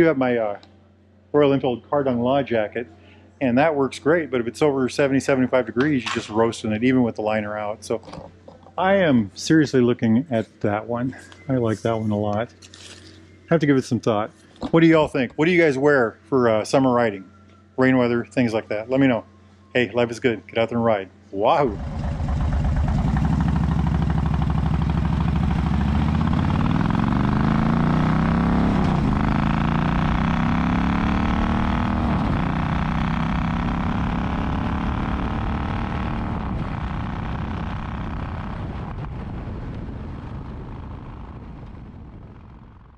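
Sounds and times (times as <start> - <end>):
motorcycle engine accelerating: 21.6 - 42.9.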